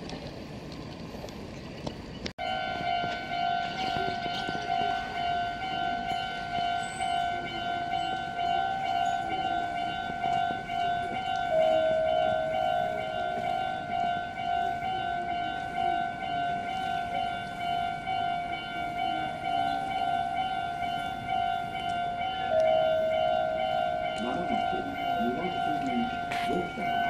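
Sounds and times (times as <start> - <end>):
level-crossing warning bell ringing: 2.4 - 27.0.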